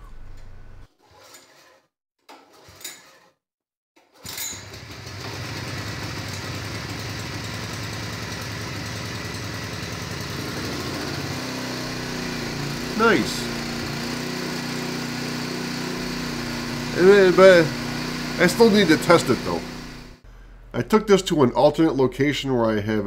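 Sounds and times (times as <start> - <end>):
small engine starting and running: 4.0 - 20.3.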